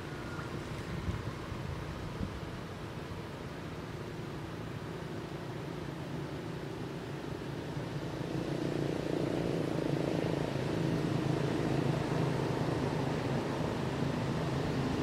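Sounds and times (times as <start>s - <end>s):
low engine drone: 0.0s - 15.0s.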